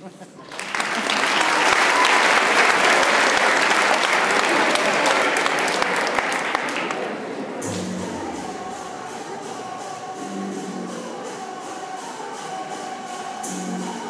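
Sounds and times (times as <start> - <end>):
crowd applauding: 0.4 - 9.0
music: 0.5 - 14.0.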